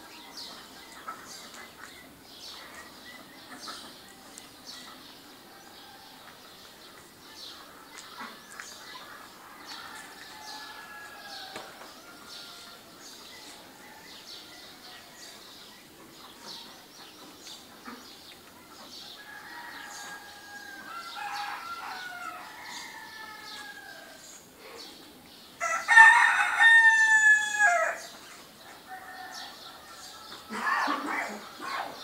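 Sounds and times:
small birds chirping: 0.0 - 26.6, 27.7 - 32.0
rooster crowing: 9.7 - 12.9, 19.2 - 24.2, 25.6 - 28.1.

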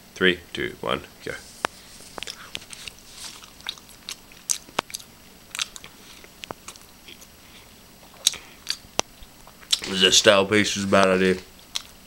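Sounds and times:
person chewing bread: 1.6 - 9.9, 11.5 - 12.0.

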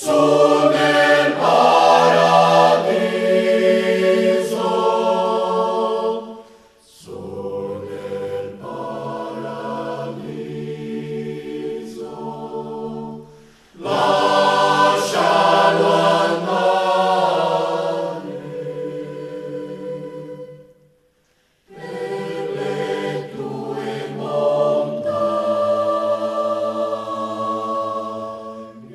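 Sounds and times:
choir singing unaccompanied: 0.0 - 21.0, 21.6 - 28.9.

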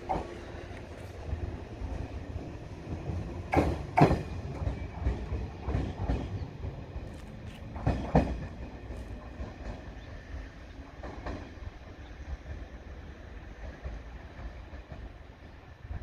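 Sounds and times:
electric train rumbling: 0.0 - 16.0
wheels clacking over rail joint: 3.0 - 10.1.

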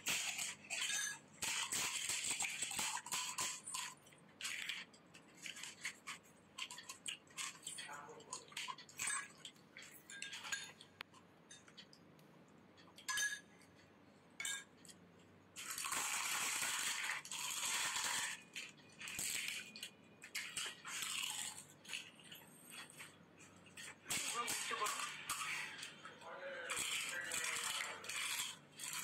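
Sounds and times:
spoons clinking in glass bowls: 0.1 - 4.0, 6.6 - 10.9, 11.5 - 11.9, 12.8 - 13.8, 14.4 - 15.0
loud crunching and slurping: 15.6 - 19.8, 20.4 - 23.5, 24.1 - 29.0.

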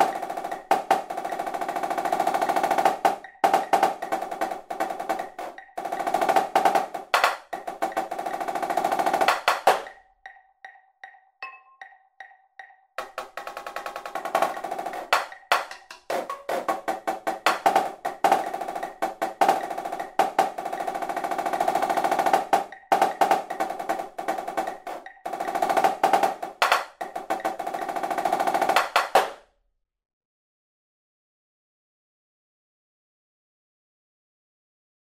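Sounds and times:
snare drum rolls and strokes: 0.0 - 10.0, 13.0 - 29.4.

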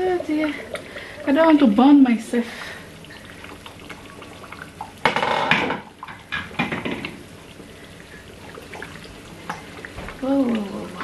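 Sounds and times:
sauce bubbling: 0.0 - 11.0
pot and utensil clatter: 5.0 - 7.2.

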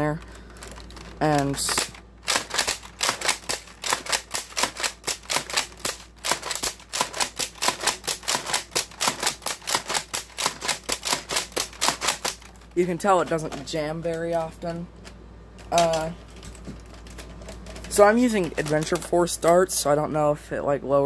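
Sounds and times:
toy blaster plastic clacks: 0.6 - 12.5, 15.6 - 19.6.

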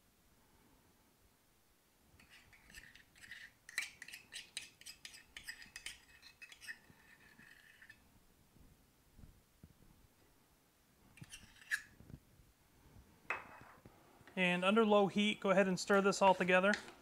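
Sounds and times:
metal spoon scraping in metal cup: 2.2 - 8.0, 11.2 - 12.0.

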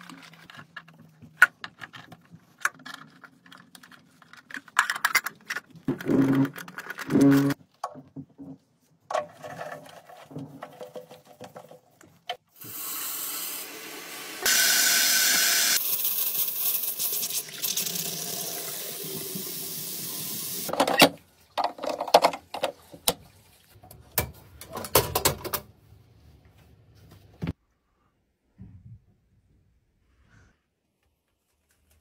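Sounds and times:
faucet running water into basin: 12.6 - 20.7.

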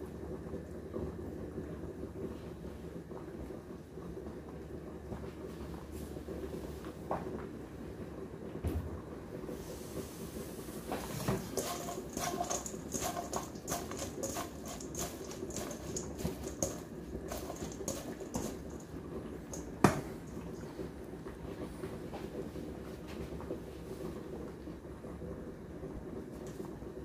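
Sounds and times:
vegetables rustling in metal bowl: 10.9 - 20.8.

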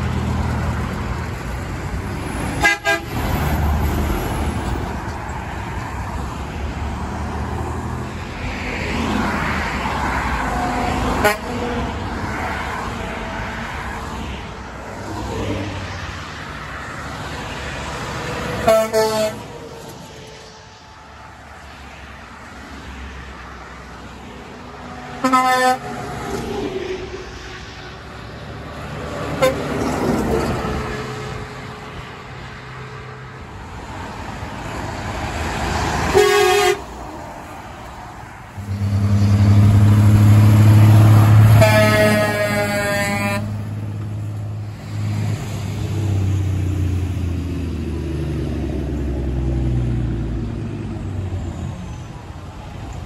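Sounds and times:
semi trucks passing: 0.0 - 53.0
truck engine rumbling: 0.0 - 53.0
truck air horn: 2.5 - 3.4, 11.1 - 11.7, 18.5 - 19.6, 25.0 - 26.2, 29.2 - 29.8, 36.0 - 37.0, 38.6 - 43.7.

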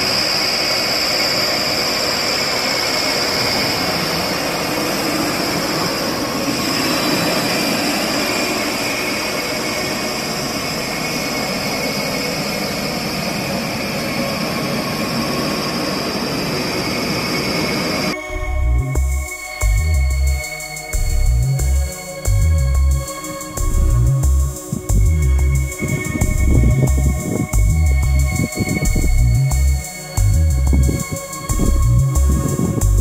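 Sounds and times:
steady hiss: 19.2 - 33.0
diesel engine running: 23.6 - 33.0.

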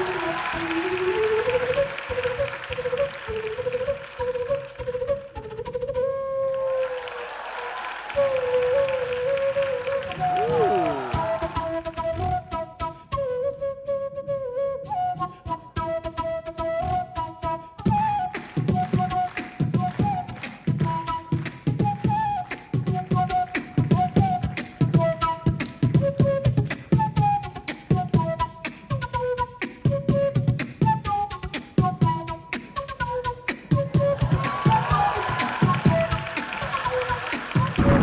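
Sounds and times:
steady percussive beat: 34.2 - 38.0.

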